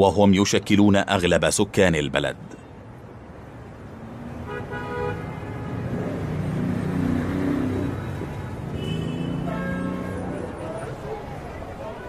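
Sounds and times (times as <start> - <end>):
traffic rumble: 0.0 - 12.0
car horns honking: 4.5 - 6.0, 8.6 - 10.8.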